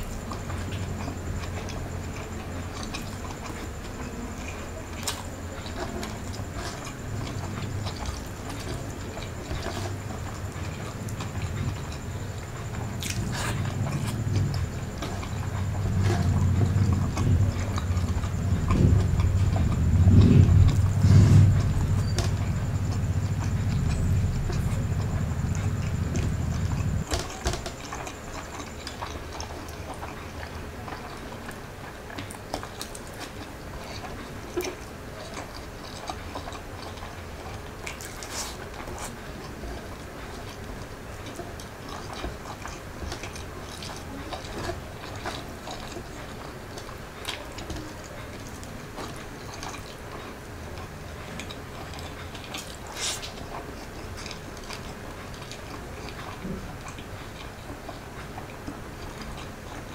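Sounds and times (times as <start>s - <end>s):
close chewing and mouth clicks: 0.0s - 59.9s
low rumble: 9.4s - 27.1s.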